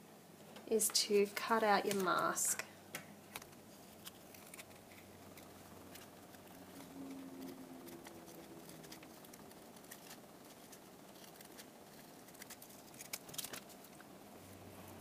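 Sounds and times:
small scissors snipping paper: 0:03.3 - 0:14.0.

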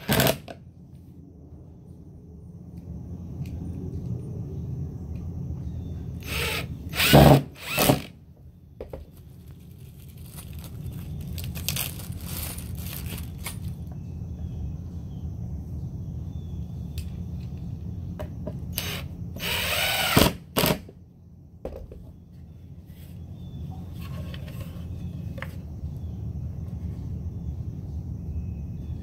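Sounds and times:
impact driver driving screw into wood: 0:00.0 - 0:00.5, 0:06.2 - 0:08.1, 0:18.7 - 0:20.8
low background rumble: 0:00.0 - 0:29.0.

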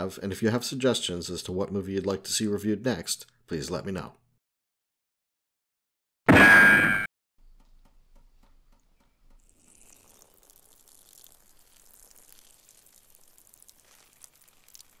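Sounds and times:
light crackles: 0:07.6 - 0:15.0.

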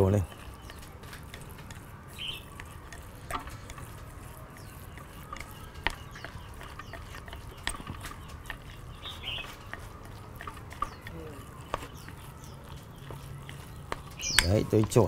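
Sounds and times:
soft squelching of mash stirred: 0:00.0 - 0:15.0
utensils clicking against glass: 0:00.0 - 0:15.0.

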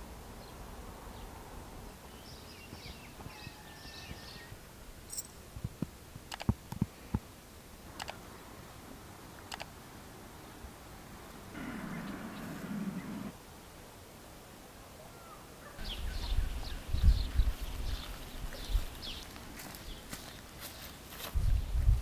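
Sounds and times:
faint ticks: 0:05.1 - 0:07.2, 0:09.4 - 0:09.7
sharp clicks: 0:05.2 - 0:06.9, 0:07.9 - 0:08.2, 0:09.5 - 0:09.7.

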